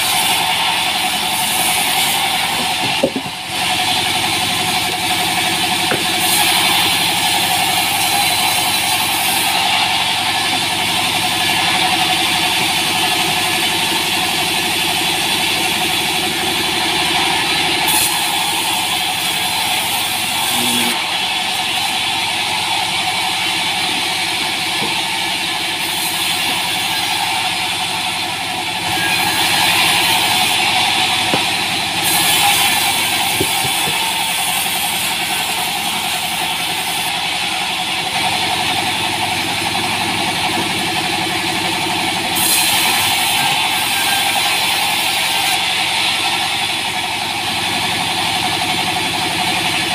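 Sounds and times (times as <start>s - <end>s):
band saw running: 0.0s - 49.9s
saw blade cutting logs: 0.0s - 49.9s.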